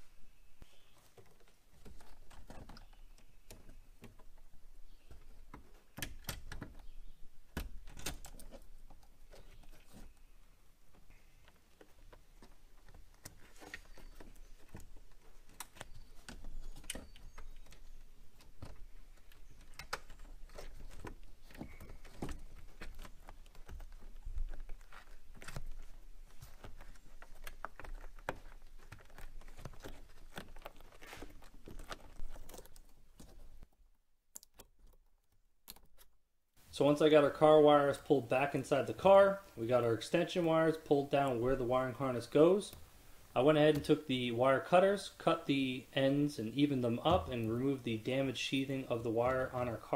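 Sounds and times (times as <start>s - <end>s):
hands handling wiring and rubber: 0.6s - 36.3s.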